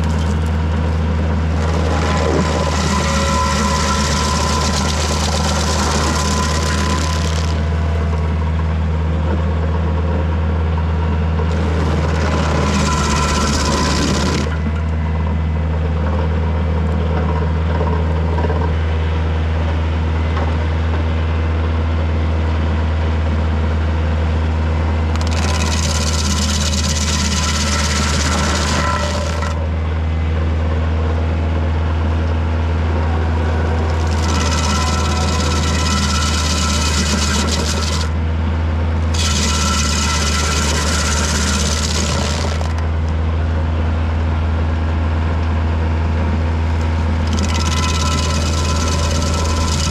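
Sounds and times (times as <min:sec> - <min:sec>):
stump grinder chewing wood: 0:00.0 - 0:08.3, 0:11.5 - 0:14.8, 0:25.1 - 0:29.6, 0:33.0 - 0:38.2, 0:39.0 - 0:43.2, 0:47.2 - 0:49.9
tractor diesel engine running: 0:00.0 - 0:49.9.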